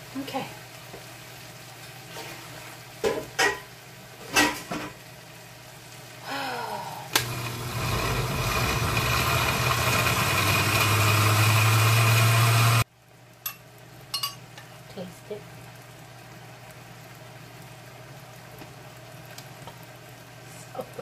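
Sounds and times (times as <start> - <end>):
blender motor running: 7.1 - 12.8.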